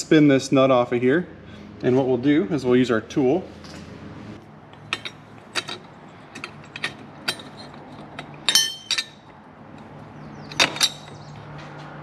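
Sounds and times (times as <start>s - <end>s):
metal tool clicking and clinking: 4.8s - 9.9s, 10.5s - 11.2s.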